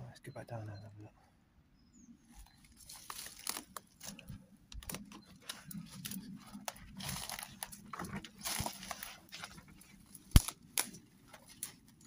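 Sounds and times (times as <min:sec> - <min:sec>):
footsteps crunching dry leaves: 0:02.5 - 0:04.3, 0:05.8 - 0:11.9.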